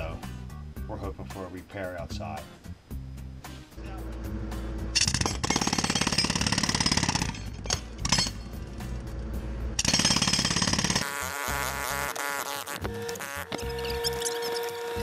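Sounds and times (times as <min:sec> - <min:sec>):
jackhammer hammering concrete: 0:05.0 - 0:08.3, 0:09.8 - 0:11.1.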